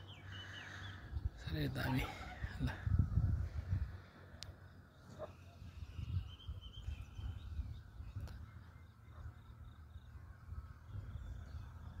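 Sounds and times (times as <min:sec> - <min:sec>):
faint bird calls: 0:00.0 - 0:11.8
wind buffeting microphone: 0:01.1 - 0:04.2, 0:05.6 - 0:08.8, 0:10.1 - 0:12.0.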